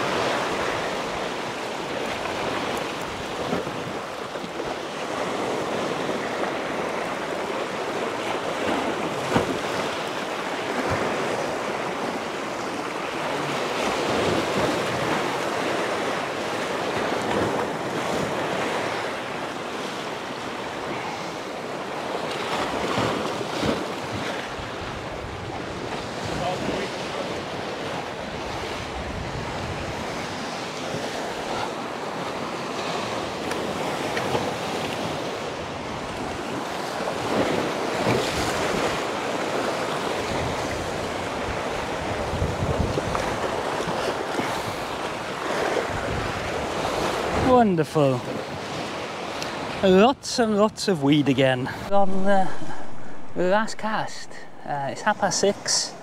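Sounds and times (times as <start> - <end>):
waves washing over rocky shore: 0.0 - 56.0
wind buffeting microphone: 22.5 - 31.4, 33.7 - 47.6.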